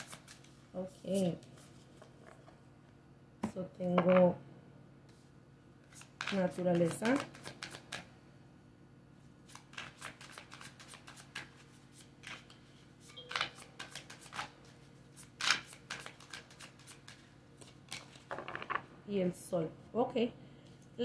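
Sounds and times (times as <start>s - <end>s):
cards being shuffled: 0.0s - 2.1s, 5.8s - 8.1s, 9.5s - 18.8s.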